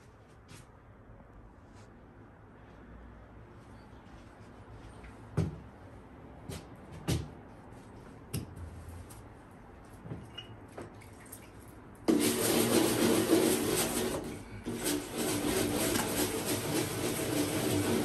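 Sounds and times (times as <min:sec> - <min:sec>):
sponge rubbing on glass: 0:12.2 - 0:18.0.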